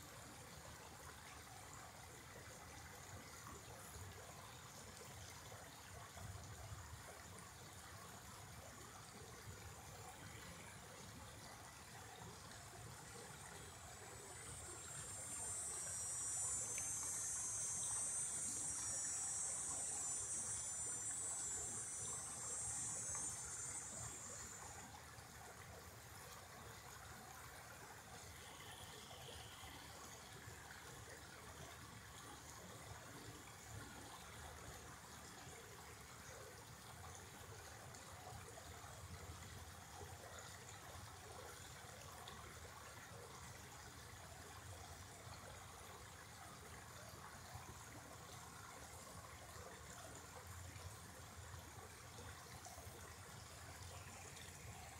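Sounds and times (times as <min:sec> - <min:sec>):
creek trickling over rocks: 0:00.0 - 0:54.9
high-pitched steady buzz: 0:12.0 - 0:25.8.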